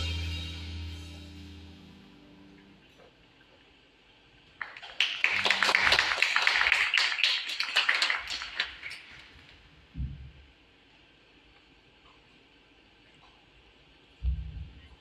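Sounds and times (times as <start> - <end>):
audience applause: 4.6 - 9.2.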